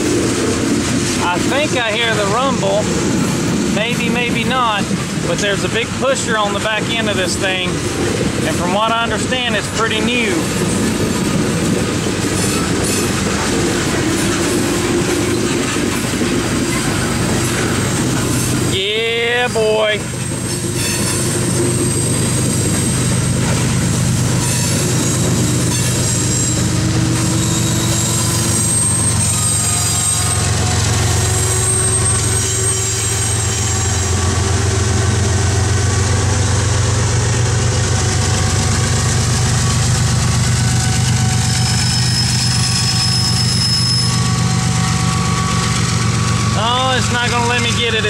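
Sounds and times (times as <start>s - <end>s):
train wheels clattering on rails: 0.0s - 19.2s, 19.8s - 48.0s
diesel locomotive engine drone: 0.0s - 48.0s
high wheel squeals: 12.3s - 34.6s, 40.6s - 48.0s.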